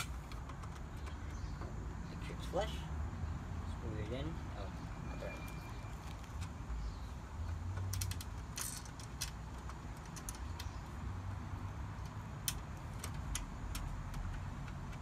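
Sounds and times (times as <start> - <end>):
small screws clicking: 7.4 - 11.0, 11.9 - 15.0.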